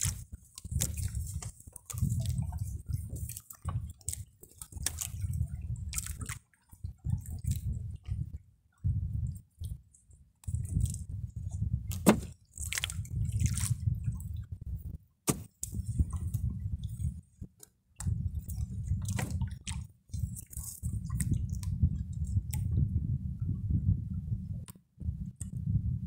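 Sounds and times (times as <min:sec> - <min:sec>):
wet fishing net handling: 0:11.9 - 0:13.8, 0:15.3 - 0:16.4
low rumble: 0:18.1 - 0:26.0.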